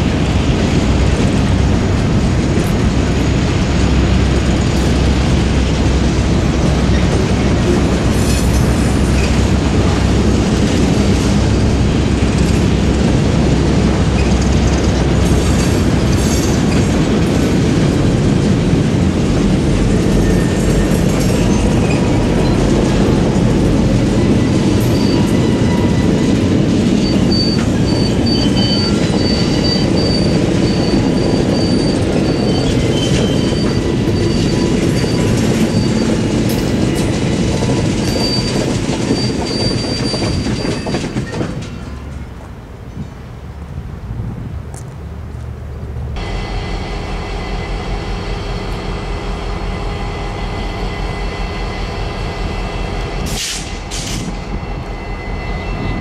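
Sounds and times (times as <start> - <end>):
freight train wheels clattering: 0.0 - 43.4, 46.2 - 56.0
high wheel squeal: 23.9 - 42.3, 49.8 - 56.0.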